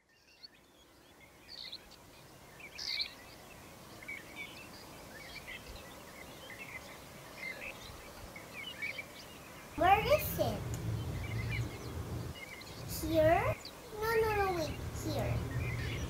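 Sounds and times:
room and outdoor ambience: 0:00.0 - 0:16.0
birds chirping: 0:00.2 - 0:16.0.

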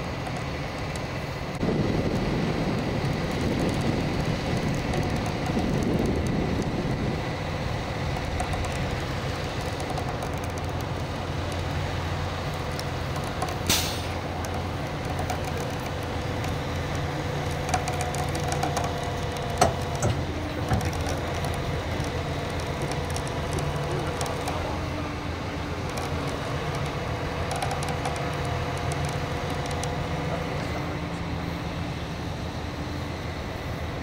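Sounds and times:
truck engine running under load: 0:00.0 - 0:34.0
sharp clicks: 0:03.2 - 0:06.8, 0:08.0 - 0:11.7, 0:12.5 - 0:25.0, 0:25.7 - 0:30.3
short hiss: 0:13.7 - 0:14.2.

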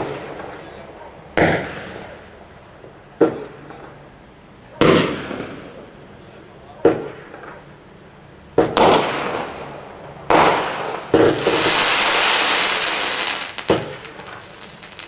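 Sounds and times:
firework shots launching: 0:10.3 - 0:15.0
firework hiss: 0:10.4 - 0:15.0.

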